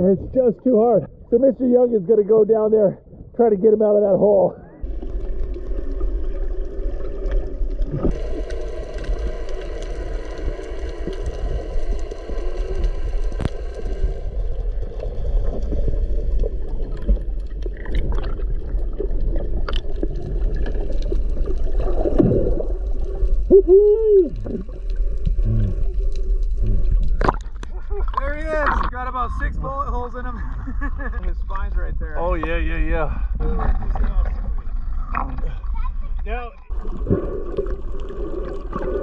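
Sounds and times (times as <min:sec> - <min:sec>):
underwater low rumble: 0:04.7 - 0:39.0
underwater clicks: 0:16.2 - 0:23.0, 0:24.2 - 0:28.9.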